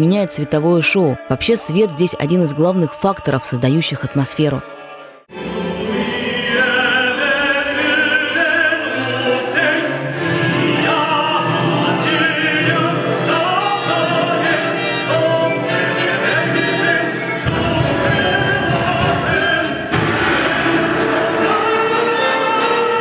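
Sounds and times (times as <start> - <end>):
chorus singing: 0.0 - 23.0
orchestral accompaniment: 0.0 - 23.0.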